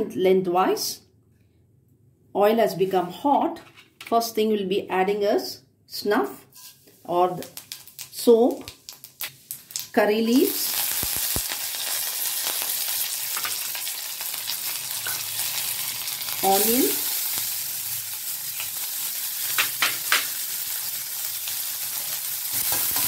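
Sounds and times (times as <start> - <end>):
seeds sizzling in hot oil: 6.5 - 23.0.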